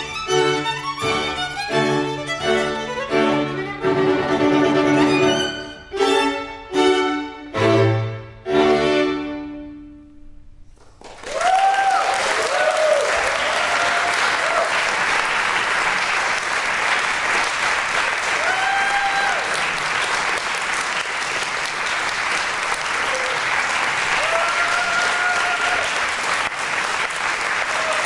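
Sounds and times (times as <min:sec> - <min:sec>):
string quartet chord: 0:00.0 - 0:10.4
audience applause: 0:10.8 - 0:28.0
whoops of cheering: 0:11.2 - 0:14.8, 0:18.4 - 0:19.6, 0:23.1 - 0:23.5, 0:24.2 - 0:26.0, 0:27.6 - 0:28.0.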